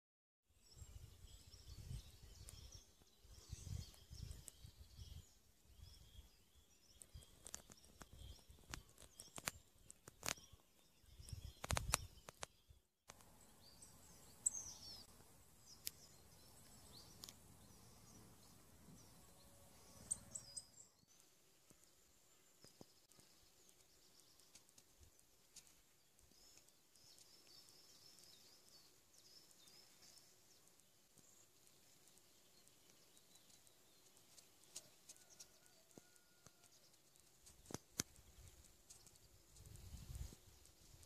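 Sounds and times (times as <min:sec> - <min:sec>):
small birds chirping: 0:00.5 - 0:41.0
sharp clicks: 0:11.3 - 0:12.5.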